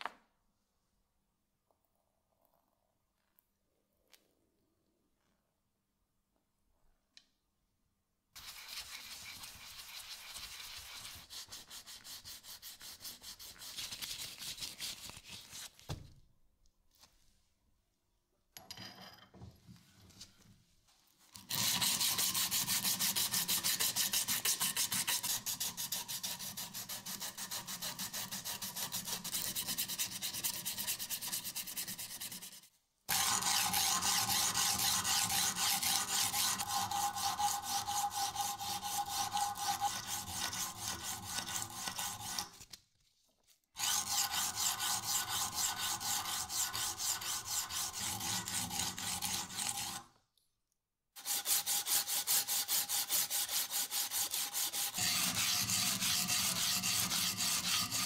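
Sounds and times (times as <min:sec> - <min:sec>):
sandpaper rubbing steel: 0:08.4 - 0:15.6, 0:21.4 - 0:42.6, 0:43.8 - 0:50.0, 0:51.2 - 0:58.0.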